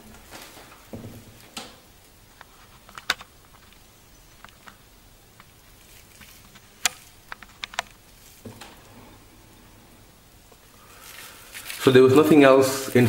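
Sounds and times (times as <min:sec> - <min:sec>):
cardboard packaging rustling: 0:00.0 - 0:01.6, 0:02.4 - 0:09.2, 0:10.6 - 0:12.4.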